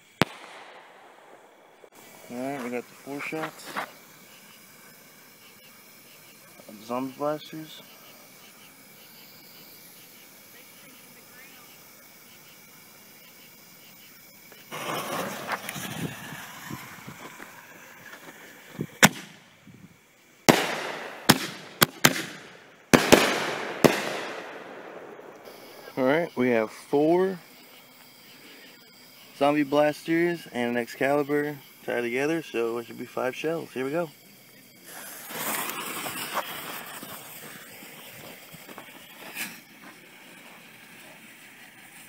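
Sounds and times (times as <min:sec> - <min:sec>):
firework shells bursting with echo: 0:00.0 - 0:10.1, 0:14.3 - 0:19.5, 0:20.4 - 0:27.1
fuse hissing and sparking: 0:00.0 - 0:42.0.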